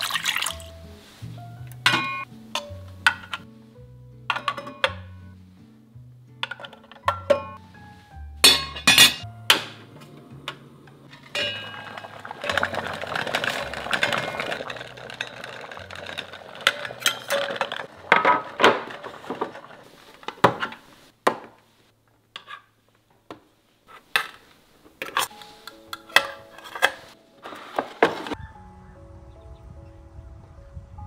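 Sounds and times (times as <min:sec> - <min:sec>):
steel containers clinking: 0:01.8 - 0:03.5, 0:04.3 - 0:05.1, 0:08.4 - 0:10.0, 0:11.0 - 0:20.9
crackly rustling noise: 0:11.0 - 0:28.4.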